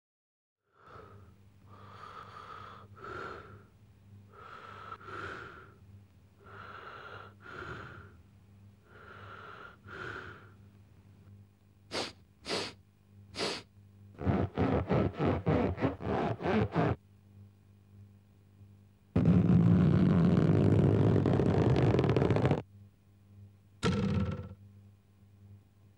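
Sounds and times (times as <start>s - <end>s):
cartoon nasal breathing: 0.8s - 3.7s, 4.3s - 5.8s, 6.4s - 8.2s, 8.9s - 10.6s, 11.9s - 12.8s, 13.4s - 13.7s
fast nasal noises: 11.9s - 12.8s, 13.4s - 17.0s, 19.2s - 22.6s
sharp sniffs: 11.9s - 12.8s, 13.4s - 13.7s.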